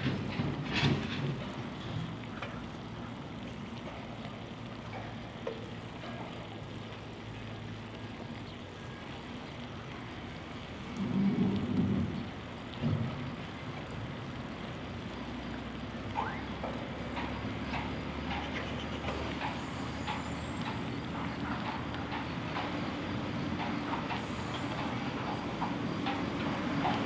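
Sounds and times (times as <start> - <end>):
bicycle rolling: 0.0 - 18.4.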